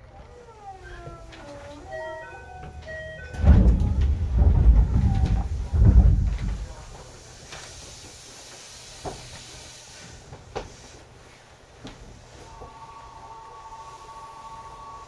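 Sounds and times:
heavy rumbling knocks in subway car: 0:02.7 - 0:07.8
faint hiss: 0:05.4 - 0:15.0.

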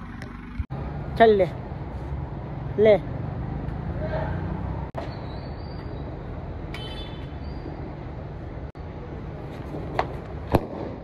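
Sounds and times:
street noise: 0:00.0 - 0:11.0
firecracker cracks: 0:10.5 - 0:11.0.

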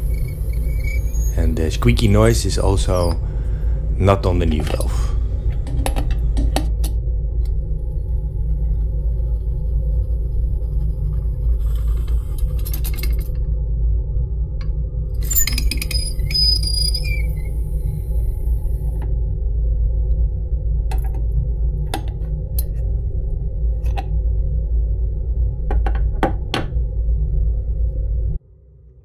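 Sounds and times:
metal valve squeaking and scraping: 0:00.0 - 0:03.2, 0:15.2 - 0:18.4
steady low hum: 0:00.0 - 0:29.0.

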